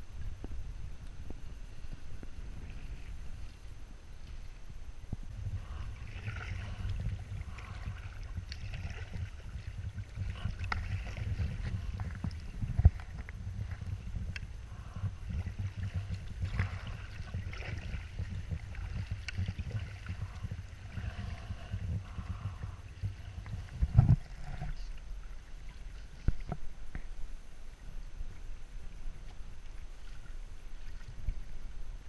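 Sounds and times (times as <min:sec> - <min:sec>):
low rumble: 0:00.0 - 0:32.0
water slapping against kayak hull: 0:05.6 - 0:25.0.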